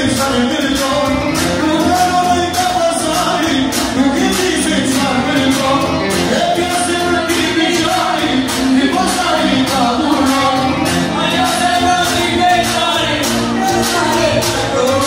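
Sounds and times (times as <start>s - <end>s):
dance music with singing: 0.0s - 15.0s.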